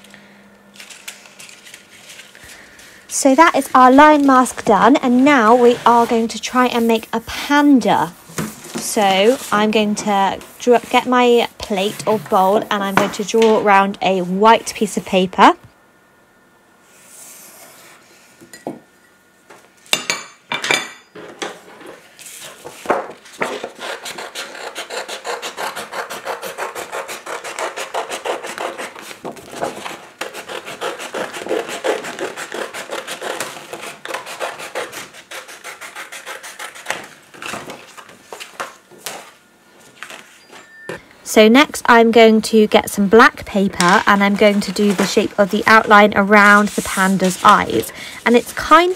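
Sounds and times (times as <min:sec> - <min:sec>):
scissors cutting paper: 0:23.4 - 0:38.1, 0:43.8 - 0:48.4
pencil scratching: 0:23.6 - 0:29.1, 0:29.8 - 0:37.0.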